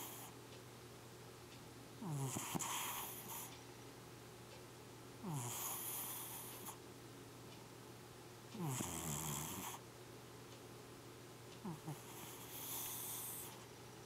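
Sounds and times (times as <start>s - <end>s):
cat snoring: 0.0s - 0.3s, 2.0s - 3.5s, 5.2s - 6.8s, 8.6s - 9.8s, 11.6s - 13.6s.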